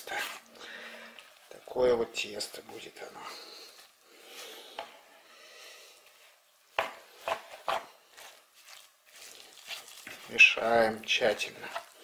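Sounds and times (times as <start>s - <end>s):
spoon stirring dough in bowl: 6.2s - 12.0s.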